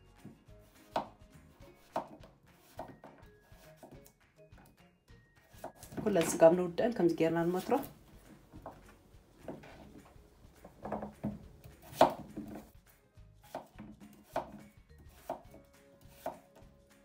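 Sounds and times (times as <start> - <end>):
faint background music: 0.0 - 17.0
knife slicing potatoes: 0.6 - 4.1, 7.4 - 12.8, 13.4 - 16.6.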